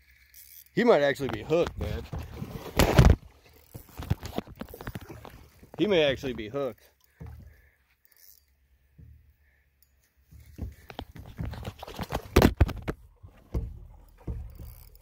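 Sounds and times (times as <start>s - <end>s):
phone handling knocks and rattles: 10.4s - 15.0s.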